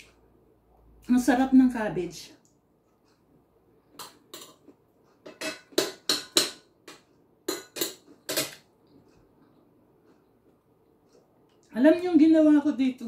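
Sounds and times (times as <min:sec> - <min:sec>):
cutlery clinking on ceramic plate: 0:04.0 - 0:08.7.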